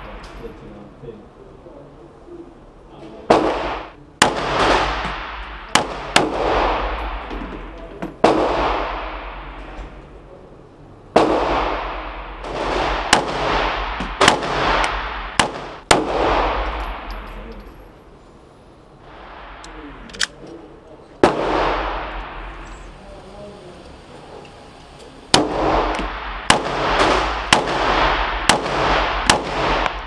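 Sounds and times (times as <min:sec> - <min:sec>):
handgun shots echoing indoors: 0:11.2 - 0:17.4, 0:25.4 - 0:30.0.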